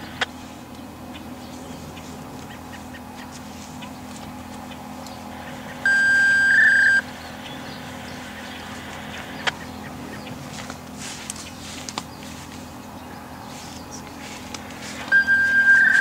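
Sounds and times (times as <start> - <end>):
steady low hum: 0.0 - 16.0
loud electronic beep: 5.8 - 7.1, 15.1 - 16.0.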